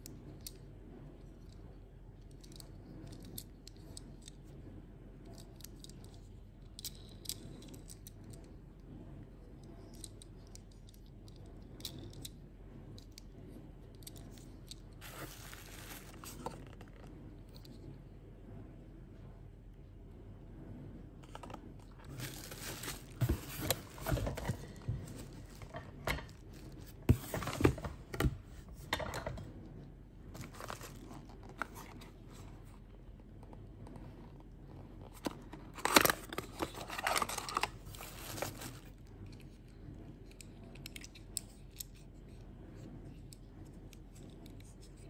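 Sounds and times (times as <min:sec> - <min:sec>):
cardboard packaging crackling: 0:15.0 - 0:17.0, 0:21.3 - 0:25.8, 0:35.6 - 0:38.9.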